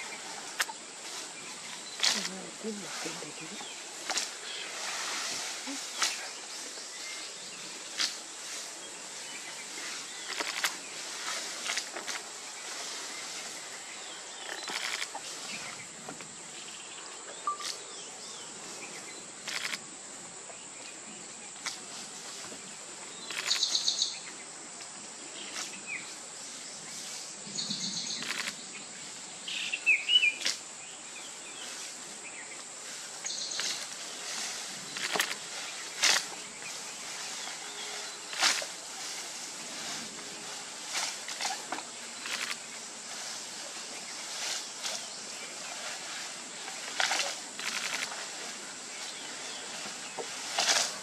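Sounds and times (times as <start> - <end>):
steady high hiss: 0.0 - 51.0
rustles and snaps: 2.0 - 2.4, 4.0 - 4.4, 10.2 - 12.3, 33.2 - 36.4, 38.3 - 39.3, 40.8 - 42.7, 46.7 - 48.3, 50.4 - 51.0
bird calls and chirps: 16.6 - 19.8, 23.2 - 24.4.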